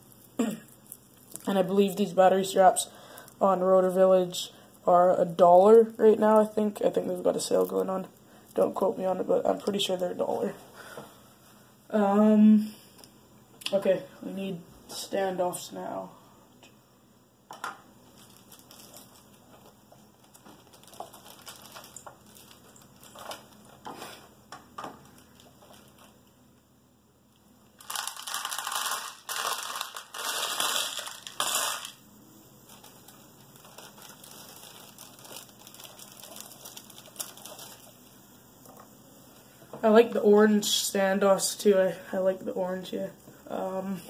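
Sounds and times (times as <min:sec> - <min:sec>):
packaging crinkling: 0:00.0 - 0:01.9, 0:18.0 - 0:26.4, 0:27.7 - 0:32.0, 0:32.6 - 0:38.1.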